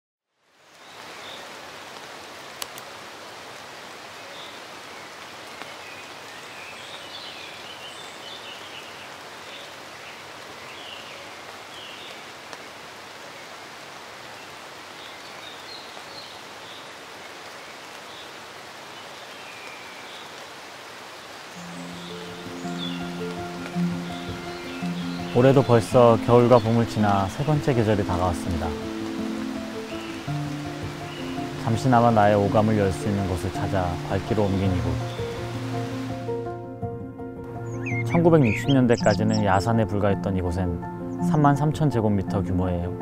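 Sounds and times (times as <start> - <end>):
rain falling on foliage: 0.3 - 36.5
faint bird chirps: 37.6 - 39.4.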